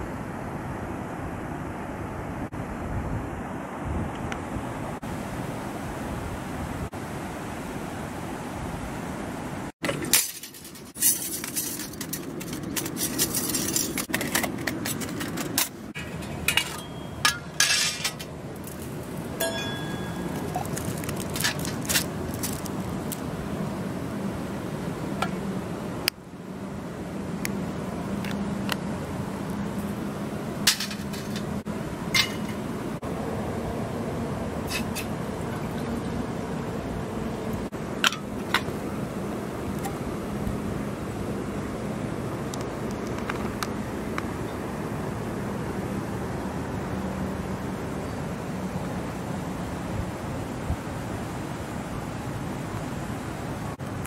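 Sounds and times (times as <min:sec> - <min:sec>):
steady background hiss: 0:00.0 - 0:54.0
metallic ring: 0:16.0 - 0:18.3, 0:19.4 - 0:20.6, 0:32.1 - 0:32.6
metal clinks: 0:19.4 - 0:20.8.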